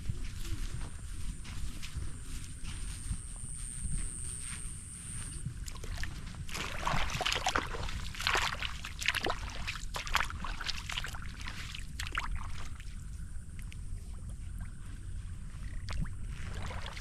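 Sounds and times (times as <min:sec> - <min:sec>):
steady low rumble: 0:00.0 - 0:17.0
water splashing and sloshing: 0:05.2 - 0:17.0.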